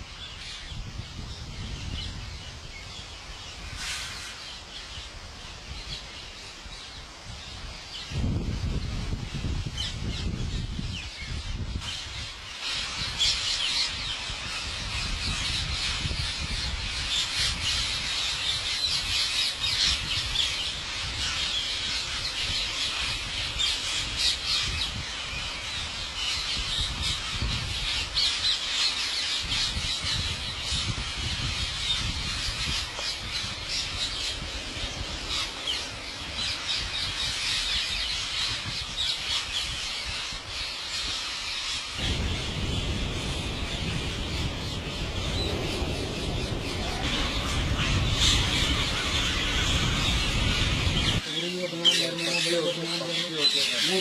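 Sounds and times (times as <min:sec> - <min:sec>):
parakeets screeching: 0:11.8 - 0:54.0.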